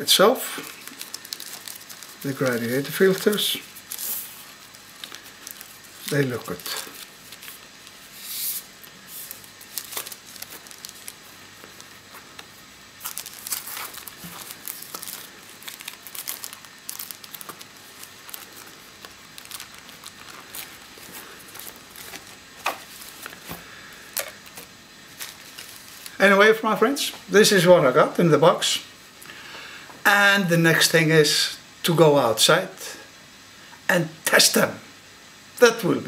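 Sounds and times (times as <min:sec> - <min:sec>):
paper and fabric rustling: 0:00.6 - 0:26.2.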